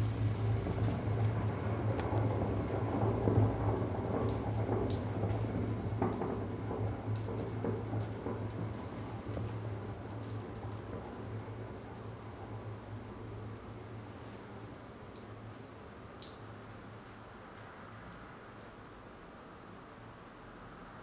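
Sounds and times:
hot metal sizzling and crackling: 0.0 - 1.3.

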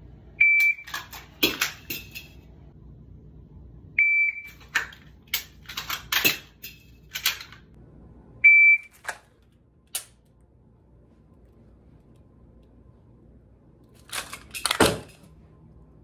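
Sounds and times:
shot timer beeps: 0.4 - 0.9, 8.4 - 8.9.

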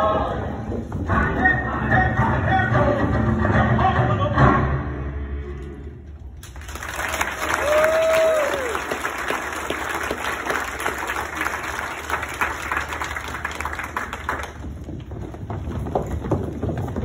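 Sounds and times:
audience applause: 6.4 - 14.7.

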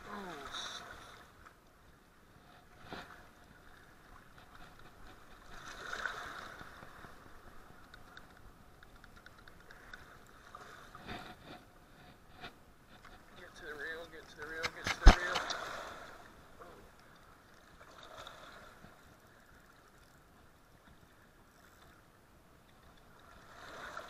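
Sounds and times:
rushing river current: 0.0 - 1.4, 13.5 - 20.3, 23.1 - 24.0.

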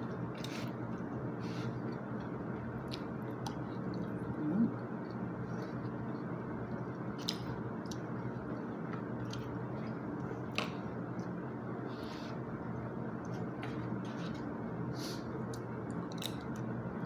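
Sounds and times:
person chewing food: 0.0 - 11.4.

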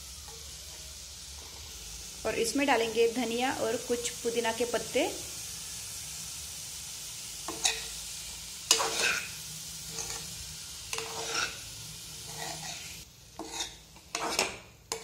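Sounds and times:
frying sizzle: 0.0 - 15.0
metal spatula scraping pan: 7.5 - 8.0, 8.7 - 11.6, 12.2 - 15.0.

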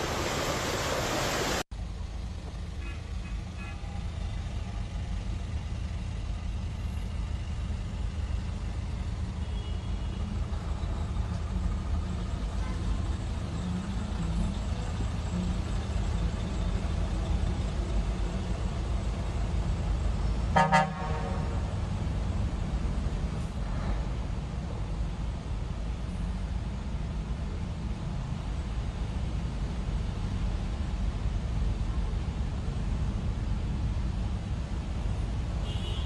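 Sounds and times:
engines and tyres in water: 0.0 - 36.0
car horn toot: 9.4 - 10.3, 20.5 - 21.6, 35.6 - 36.0.

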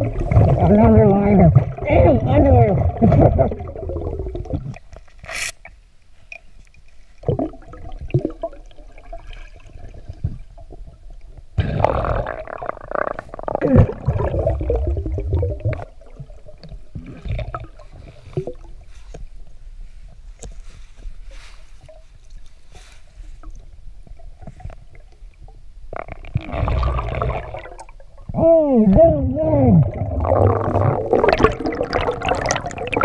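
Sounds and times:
underwater bubbling: 0.0 - 19.1, 21.8 - 33.0.

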